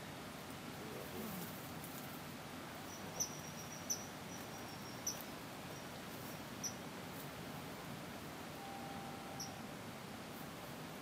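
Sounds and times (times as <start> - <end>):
steady background hum: 2.2 - 11.0
faint high trill: 8.6 - 9.8
kingfisher high call notes: 8.6 - 9.8.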